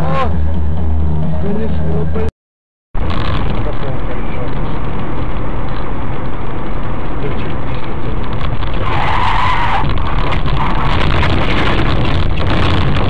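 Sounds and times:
road and engine rumble: 0.0 - 13.0
tyres squealing under braking: 8.7 - 11.1.

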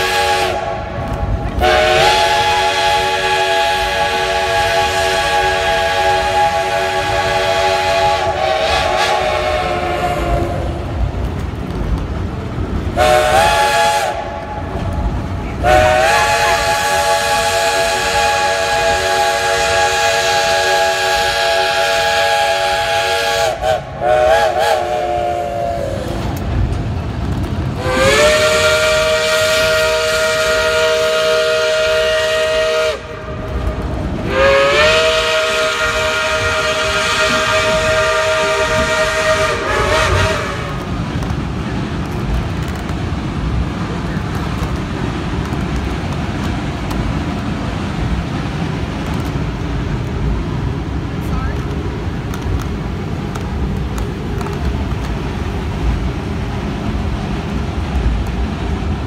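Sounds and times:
low rumble of moving train: 0.0 - 59.0
steam locomotive chime whistle: 1.6 - 10.6, 34.3 - 40.7.

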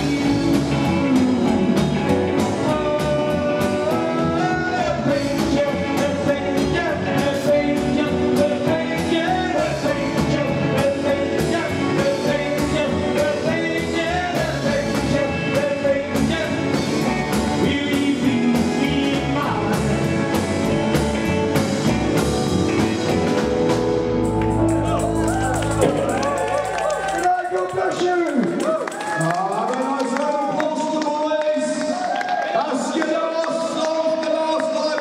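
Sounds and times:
man singing: 0.0 - 23.2
acoustic guitar: 0.0 - 26.6
upright double bass: 0.0 - 27.2
drum kit beat: 0.0 - 27.3.

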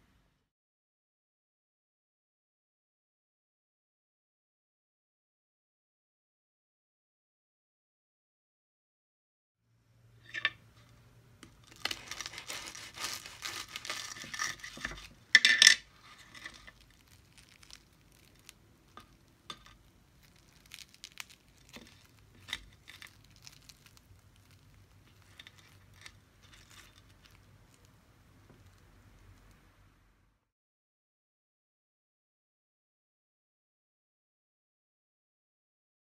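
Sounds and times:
fried pastry crackling: 10.2 - 29.8.

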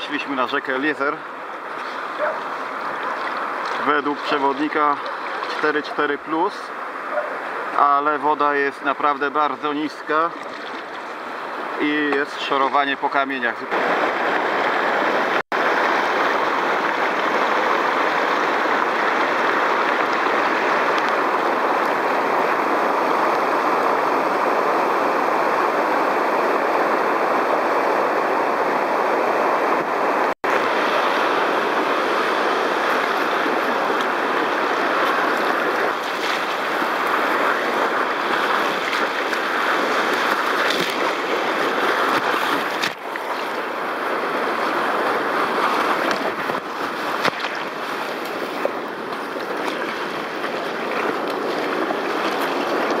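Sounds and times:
whitewater rapids rushing: 0.0 - 53.0.

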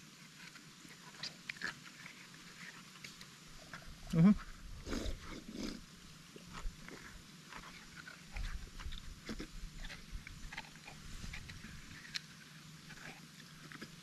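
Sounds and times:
small wet clicks: 0.3 - 3.8
chewing and smacking: 0.3 - 4.0, 4.8 - 14.0
person drinking: 3.7 - 7.7.

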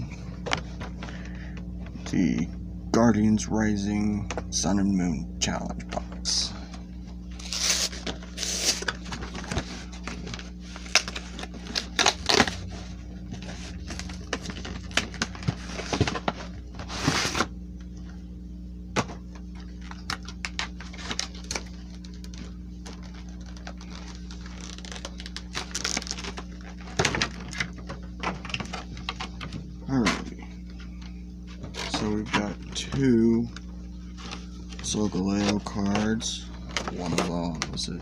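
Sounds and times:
steady low hum: 0.0 - 38.0
packaging rustling and tearing: 7.3 - 17.5, 19.6 - 29.5.

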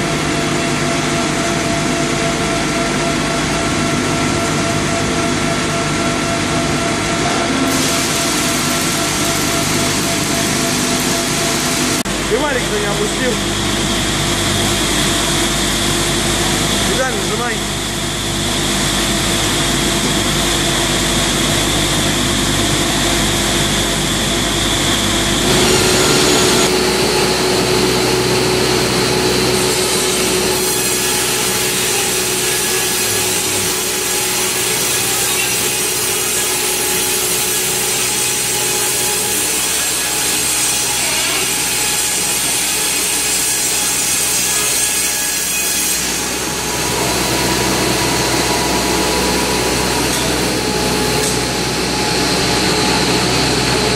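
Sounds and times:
band saw cutting through log: 5.1 - 15.8, 25.2 - 53.9
circular saw edging wood: 25.4 - 51.9.

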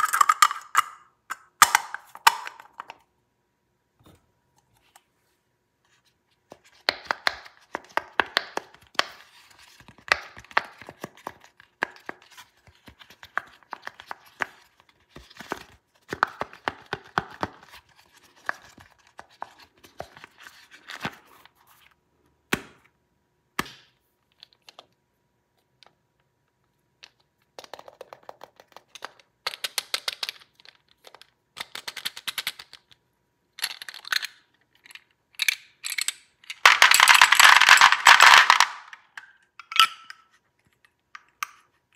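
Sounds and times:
clicks and taps: 6.5 - 9.2.

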